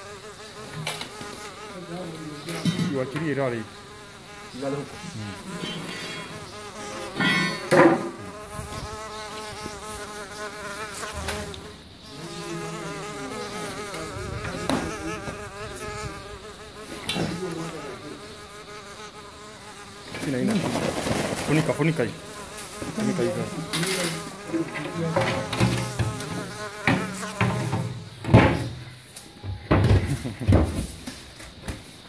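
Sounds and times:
sharp knocks: 7.2 - 8.2, 25.1 - 28.8.

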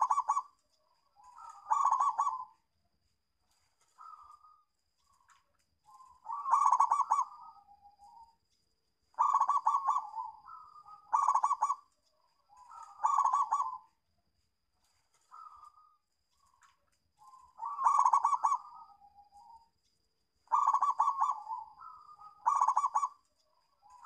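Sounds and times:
dove cooing: 0.0 - 2.7, 4.0 - 5.2, 5.9 - 8.3, 9.1 - 14.0, 15.1 - 16.0, 17.2 - 19.7, 20.4 - 24.0.

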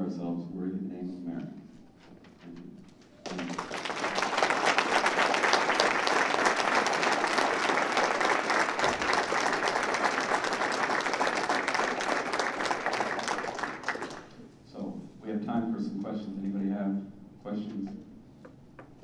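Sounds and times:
audience applauding: 3.2 - 14.4.

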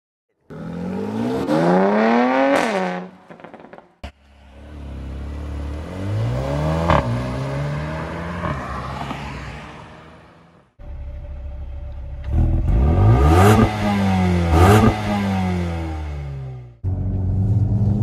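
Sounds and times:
car engine accelerating hard: 12.2 - 18.0.

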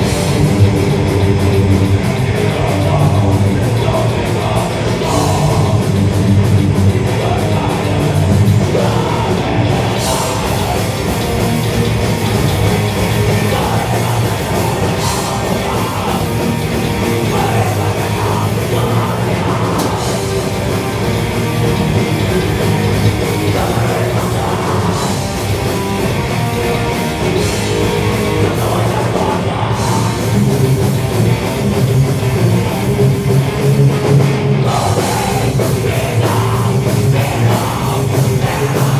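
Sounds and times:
metal band playing: 0.0 - 38.9
vocalist shouting and screaming: 2.0 - 6.1, 6.9 - 11.2, 13.0 - 20.7, 22.0 - 25.4, 27.3 - 30.5, 34.6 - 38.9.

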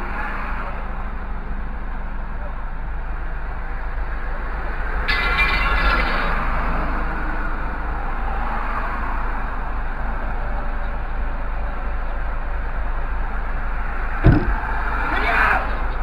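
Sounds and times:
traffic noise: 0.0 - 16.0
car engine idling: 14.2 - 15.0.

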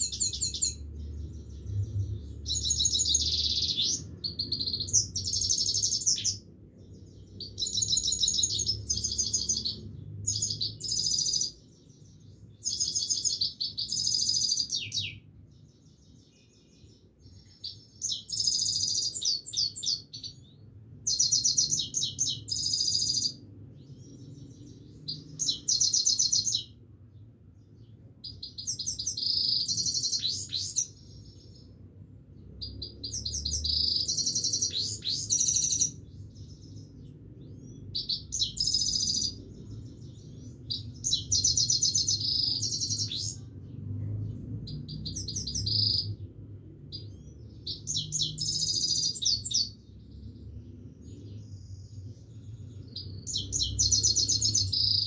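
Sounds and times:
goldfinch twittering and trilling: 0.0 - 6.4, 7.3 - 11.6, 17.6 - 20.5, 21.1 - 23.4, 28.3 - 31.6, 32.6 - 36.9, 37.6 - 43.4, 46.9 - 49.8, 52.8 - 55.0.

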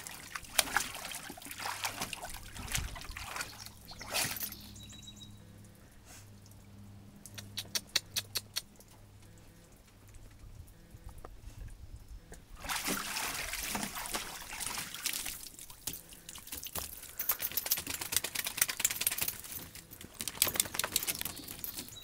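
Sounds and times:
water splashing and streaming: 0.0 - 4.7, 12.5 - 17.2
soft water drips and laps: 0.0 - 22.0.

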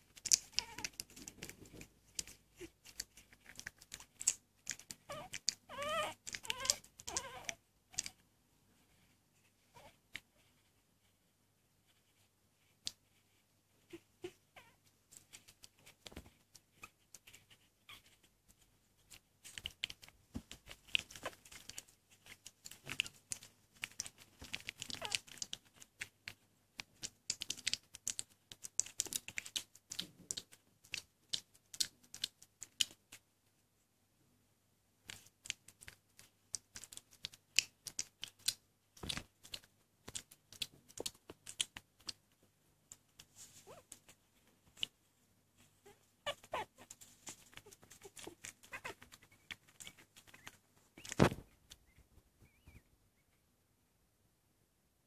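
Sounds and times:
puppies clicking and rustling: 0.0 - 8.2, 15.0 - 33.2, 35.1 - 45.0, 45.6 - 51.9.

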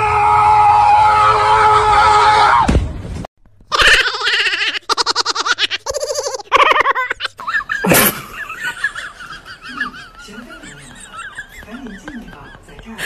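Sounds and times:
high-pitched laughter: 3.7 - 12.8.

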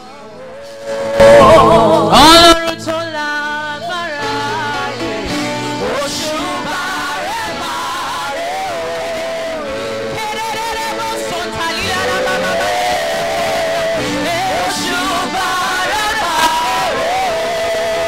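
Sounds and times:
worship singers singing: 0.0 - 18.0
live band music: 0.5 - 18.0.

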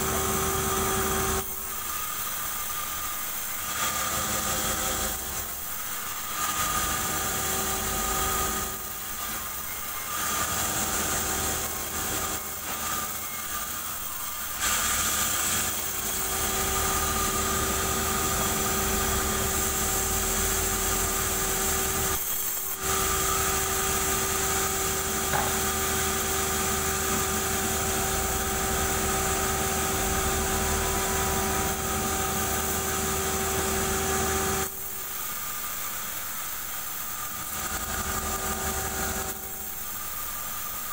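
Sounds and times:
band saw cutting log: 0.0 - 34.7.

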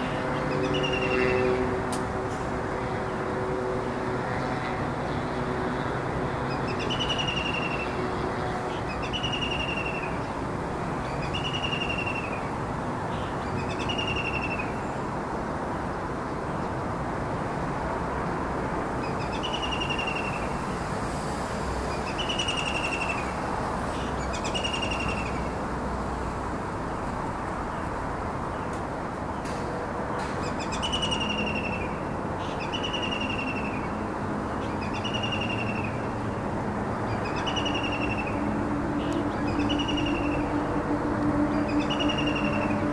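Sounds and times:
bird whistled calls: 32.5 - 33.8, 37.3 - 38.3, 39.5 - 40.4, 41.7 - 42.8.

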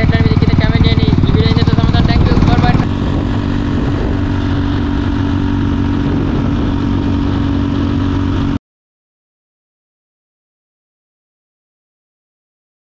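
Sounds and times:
motorcycle engine running: 0.0 - 8.6.

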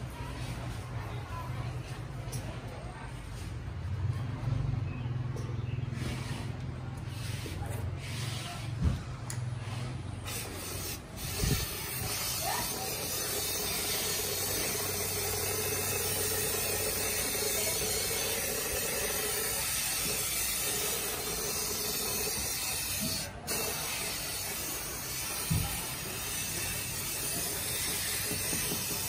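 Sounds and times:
spray gun air hissing: 10.2 - 29.0.

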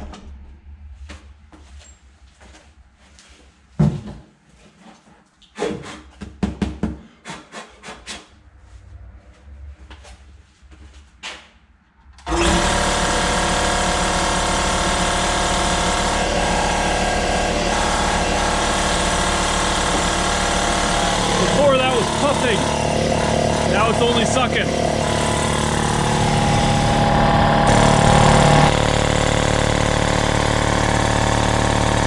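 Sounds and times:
air compressor running: 12.3 - 32.0.

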